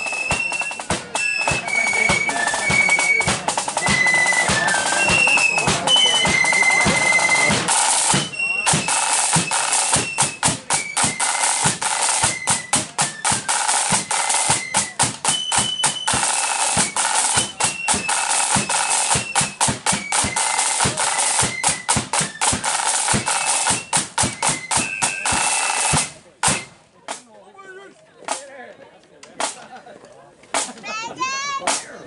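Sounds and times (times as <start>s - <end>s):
flutes playing melody: 0.0s - 26.8s
snare drum rolls: 0.0s - 27.3s, 30.5s - 30.8s
bass drum beat: 0.3s - 23.3s.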